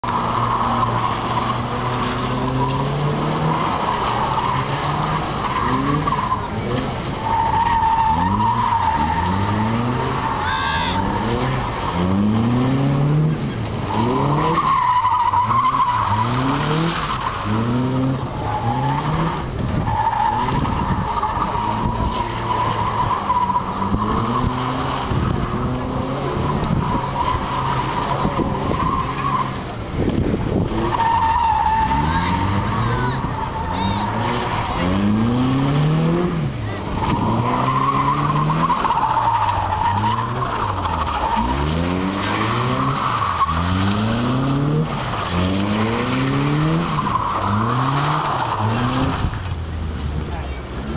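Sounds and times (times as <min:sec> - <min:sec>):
car engine revving: 0:00.0 - 0:50.9
tyres squealing: 0:30.8 - 0:49.8.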